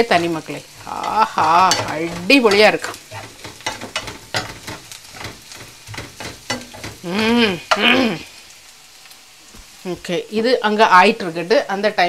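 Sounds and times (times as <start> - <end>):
woman's voice: 0.0 - 3.0, 7.0 - 8.2, 9.8 - 12.0
spatula scraping a frying pan: 0.0 - 8.0
onions sizzling in oil: 0.0 - 12.0.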